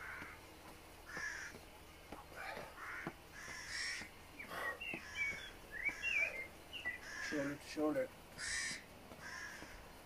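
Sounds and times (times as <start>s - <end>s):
crows cawing: 0.0s - 0.4s, 1.0s - 1.6s, 2.4s - 10.0s
footsteps on paving: 0.0s - 10.0s
small bird chirping: 3.4s - 7.3s.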